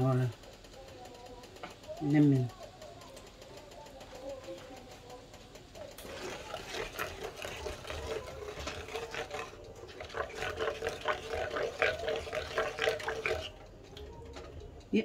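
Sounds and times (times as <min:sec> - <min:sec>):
sauce being stirred: 0:05.9 - 0:14.1
wooden spatula scraping grill pan: 0:06.0 - 0:13.5.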